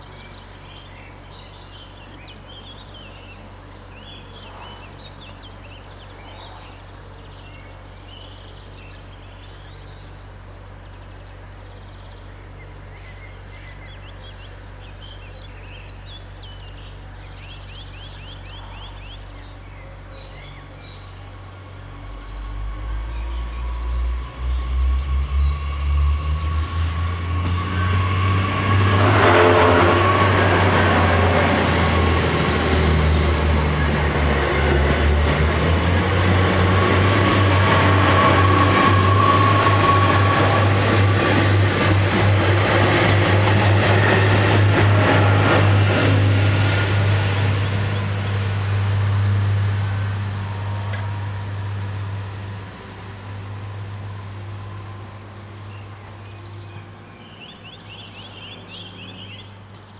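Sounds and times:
train running with wheel clatter: 0:18.5 - 0:59.9.

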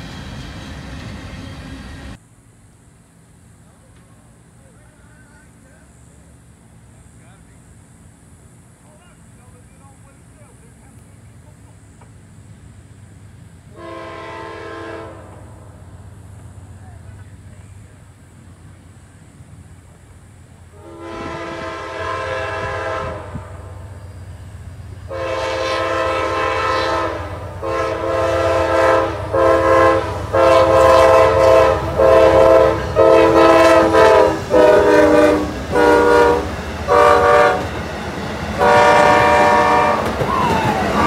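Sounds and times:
train rumbling past: 0:00.0 - 0:41.0
locomotive air horn blasts: 0:13.7 - 0:15.6, 0:20.7 - 0:24.0, 0:25.1 - 0:37.7, 0:38.6 - 0:41.0.

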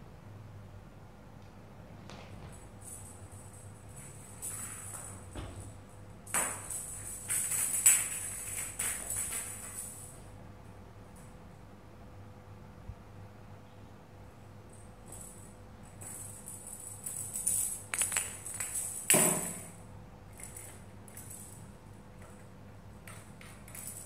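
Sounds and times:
cats scuffling: 0:02.0 - 0:10.3
small bell jingling: 0:14.8 - 0:19.1.

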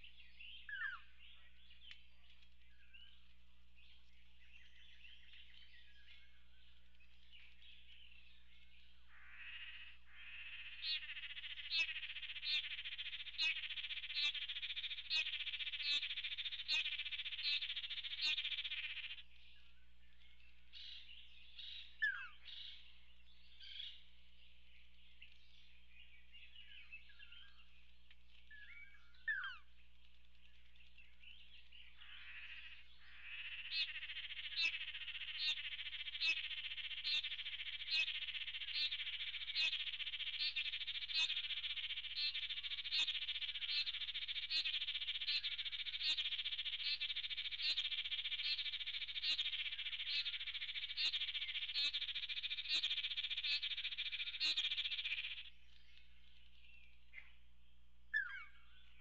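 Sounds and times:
buzzy pulsing bird call: 0:09.2 - 0:19.2, 0:32.0 - 0:55.5.

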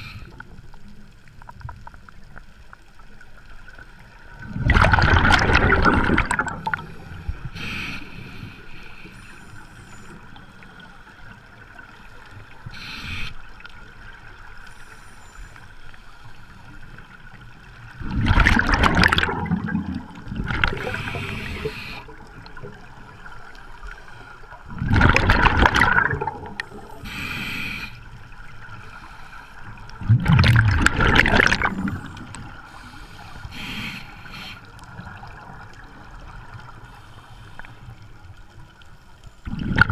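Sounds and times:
exhaled bubbles rushing: 0:04.4 - 0:07.0, 0:18.0 - 0:21.8, 0:24.7 - 0:26.8, 0:30.0 - 0:32.5, 0:39.4 - 0:39.9
regulator hissing inhalations: 0:12.7 - 0:13.4, 0:20.8 - 0:22.1, 0:26.7 - 0:28.0, 0:32.6 - 0:34.8.

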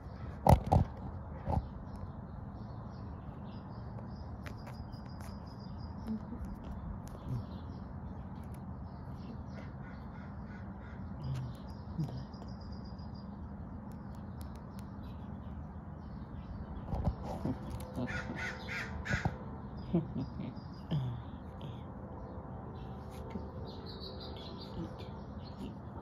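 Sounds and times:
small birds chirping: 0:00.0 - 0:26.0
steady background hum: 0:00.0 - 0:26.0
crow cawing: 0:18.1 - 0:19.4.

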